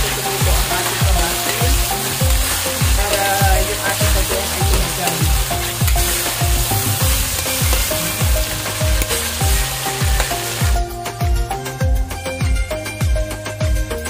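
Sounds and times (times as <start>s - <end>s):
food sizzling in hot oil: 0.0s - 11.0s
background music with beat: 0.0s - 14.0s.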